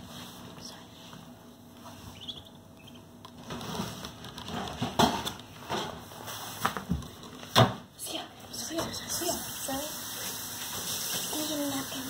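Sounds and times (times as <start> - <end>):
low steady hum: 0.0 - 12.0
ducklings pecking at feed: 2.1 - 5.1.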